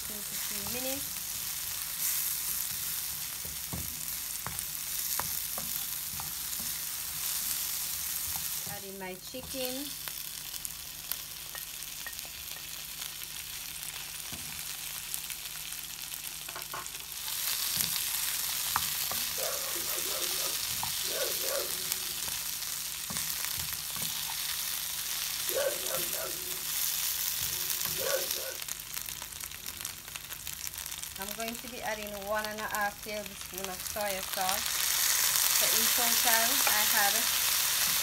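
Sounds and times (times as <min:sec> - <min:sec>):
food sizzling in a frying pan: 0:00.0 - 0:38.0
wooden spoon stirring: 0:00.4 - 0:08.8
dog barking: 0:19.3 - 0:22.1, 0:25.5 - 0:26.6, 0:27.9 - 0:28.6.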